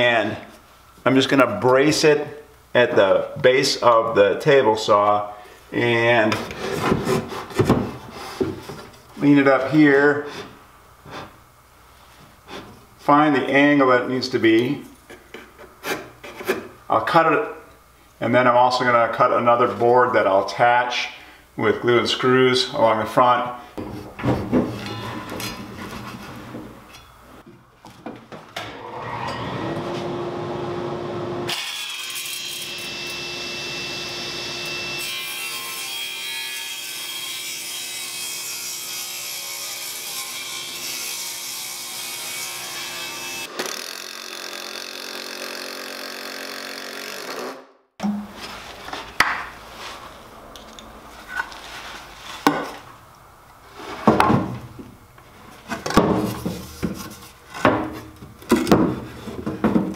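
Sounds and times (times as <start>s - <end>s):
wooden knocks and clunks: 6.4s - 8.8s, 23.8s - 26.8s, 54.0s - 55.0s, 55.7s - 59.9s
table saw cutting wood: 28.7s - 47.7s.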